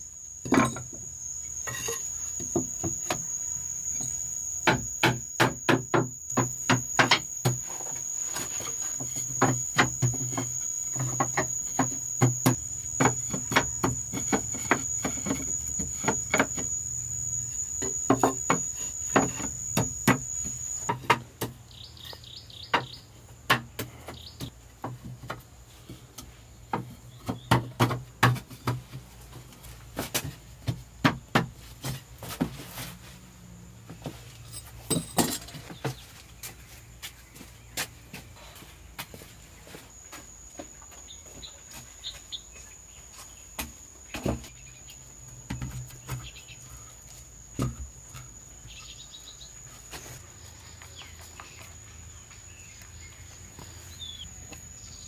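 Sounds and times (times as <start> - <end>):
high-pitched insect drone: 0.0 - 21.2.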